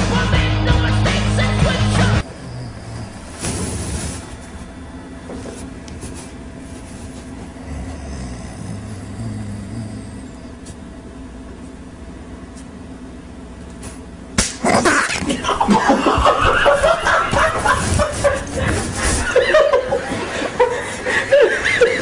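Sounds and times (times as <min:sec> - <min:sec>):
room hum: 0:00.0 - 0:22.0
sharp smack: 0:14.4 - 0:14.7
loud laughter: 0:14.6 - 0:22.0.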